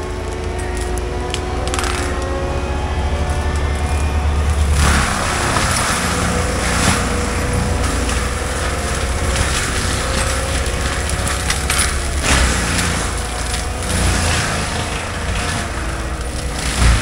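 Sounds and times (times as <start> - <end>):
track loader with mulcher running: 0.0 - 17.0
wood cracking and splintering: 0.0 - 17.0.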